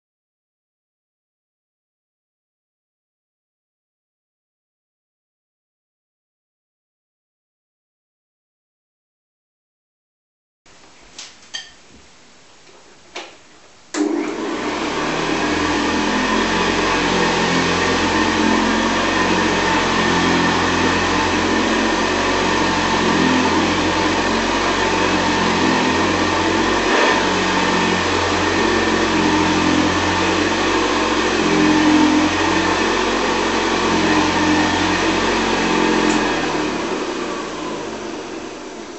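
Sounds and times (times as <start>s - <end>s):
vacuum cleaner clicks: 13.9s - 14.5s, 36.0s - 36.4s
vacuum cleaner motor running: 14.0s - 38.9s.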